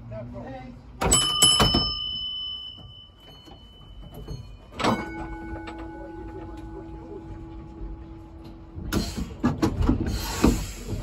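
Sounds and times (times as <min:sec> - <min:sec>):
moving tram rumble: 0:00.0 - 0:11.0
tram gong ringing: 0:01.1 - 0:08.3.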